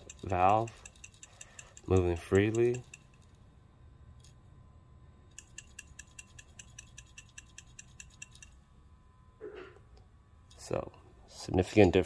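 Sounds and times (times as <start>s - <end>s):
valve check ball clicking: 0.0s - 3.2s, 5.3s - 8.6s.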